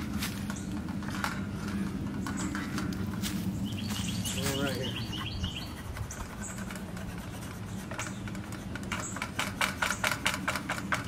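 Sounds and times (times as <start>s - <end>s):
marker scribbling on wood: 4.5s - 11.0s.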